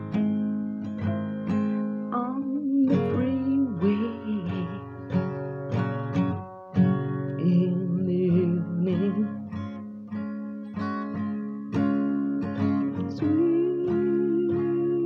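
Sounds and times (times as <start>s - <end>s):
acoustic guitar strumming: 0.0s - 15.0s
person singing: 2.1s - 5.1s, 7.4s - 9.5s, 12.9s - 15.0s.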